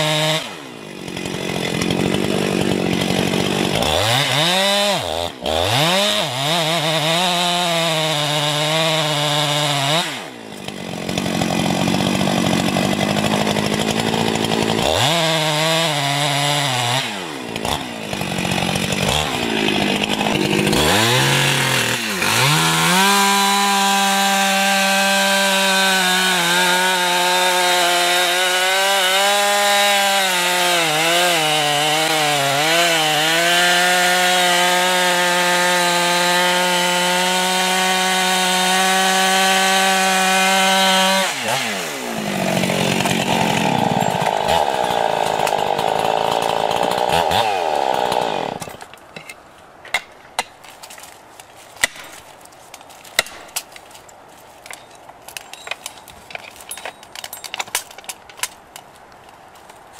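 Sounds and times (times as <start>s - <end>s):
chainsaw cutting wood: 0.0s - 49.4s, 50.0s - 59.0s.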